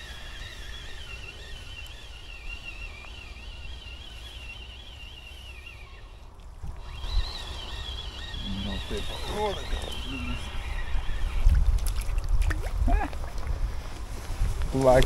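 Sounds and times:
high-pitched wavering tone: 0:00.0 - 0:11.6
wind buffeting microphone: 0:00.0 - 0:15.0.

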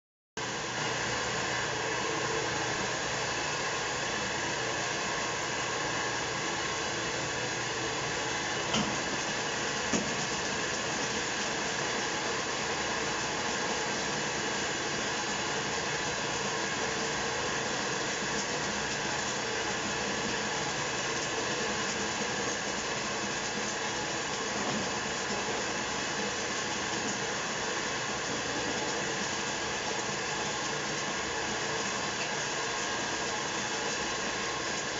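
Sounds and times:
popcorn machine whirring: 0:00.4 - 0:34.9.

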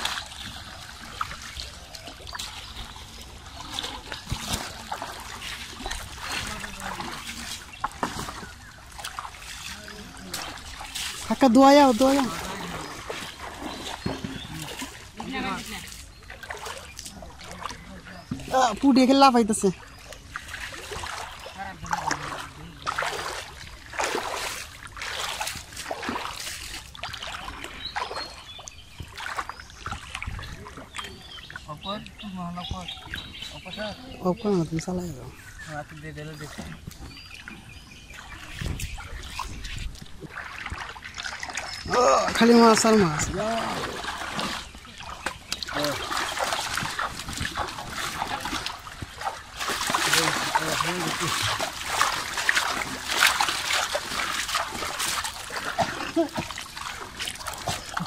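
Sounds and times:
river water splashing and trickling: 0:00.0 - 0:58.0.

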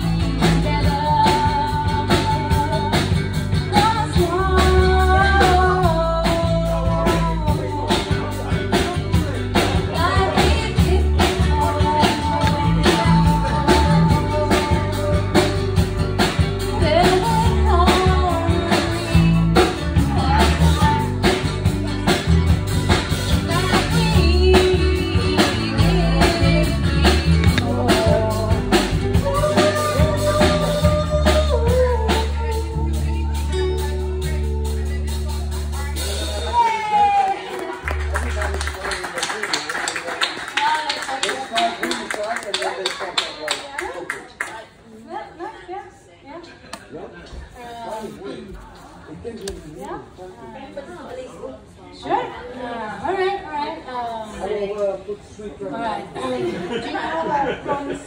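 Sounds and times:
live rock band: 0:00.0 - 0:42.0.

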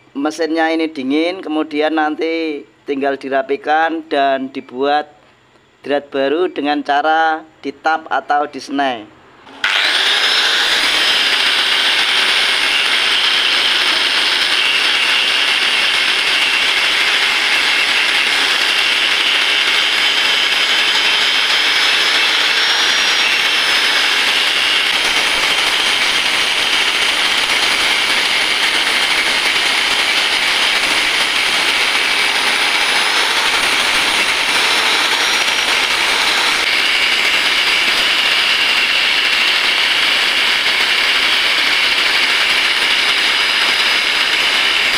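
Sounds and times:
angle grinder grinding metal: 0:09.5 - 0:44.9.

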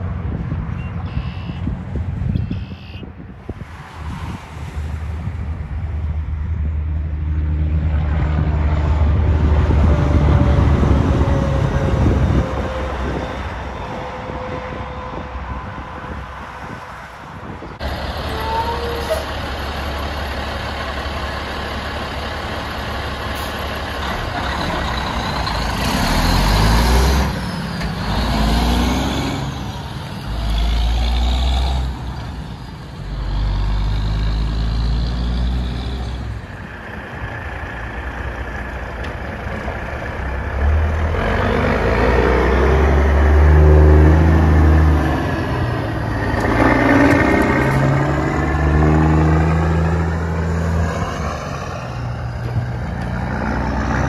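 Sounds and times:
semi truck accelerating past: 0:03.6 - 0:54.0
dump truck diesel pulling away: 0:17.8 - 0:54.0.

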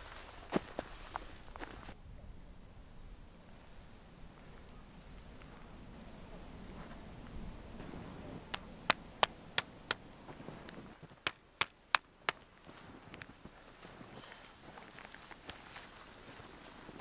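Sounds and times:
footsteps on frozen snow: 0:00.0 - 0:02.0, 0:10.0 - 0:17.0.

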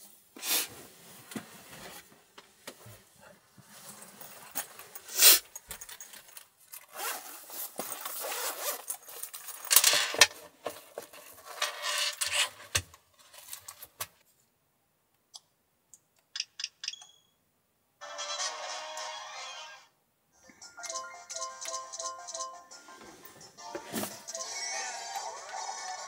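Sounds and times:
scraping and rustling handling noise: 0:00.1 - 0:14.5, 0:23.0 - 0:24.3
zipper being pulled open: 0:06.9 - 0:09.0.

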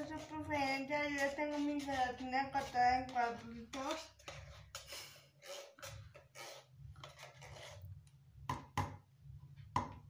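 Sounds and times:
metal spoon scraping tin can: 0:00.0 - 0:07.9.

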